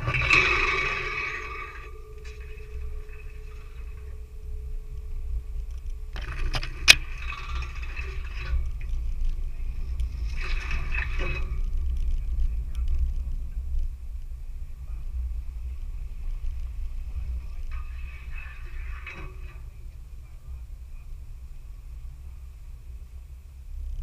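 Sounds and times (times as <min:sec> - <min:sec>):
clattering noise: 0:00.0 - 0:13.9, 0:16.4 - 0:20.0
vehicle engine rumble: 0:00.0 - 0:24.0.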